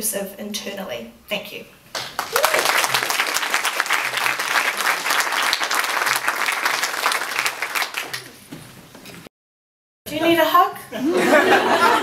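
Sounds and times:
crowd applauding: 2.0s - 8.4s.

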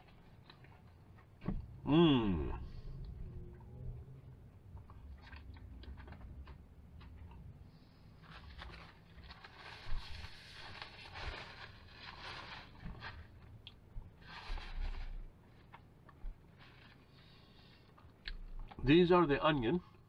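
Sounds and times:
quiet chewing: 2.5s - 7.9s
paper bag rustling: 8.2s - 13.5s, 14.2s - 15.8s, 16.5s - 17.3s.

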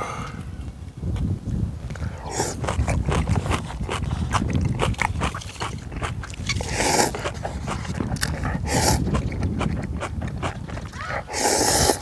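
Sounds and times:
wet chewing mouth clicks: 2.0s - 12.0s
noodle slurp: 2.2s - 12.0s.

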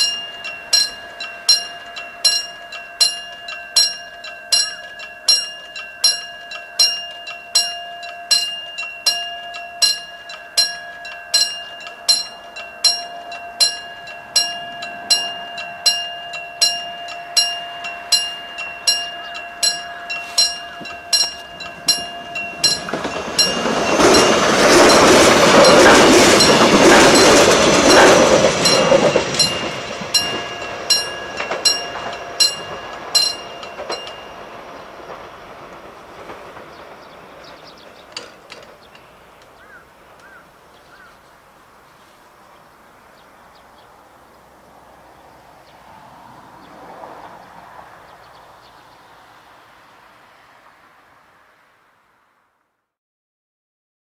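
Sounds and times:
train wheels clattering on rails: 0.0s - 41.1s
railroad crossing bell ringing: 0.0s - 51.4s.

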